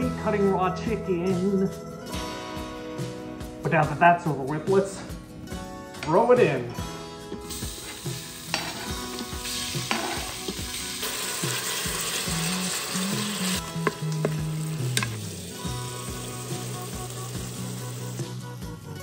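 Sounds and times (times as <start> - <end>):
chicken sizzling in hot oil: 7.4 - 18.4.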